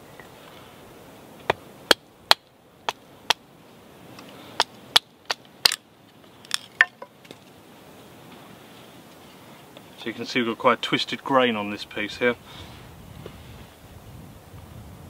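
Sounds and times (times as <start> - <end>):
stick splitting: 4.1 - 7.4.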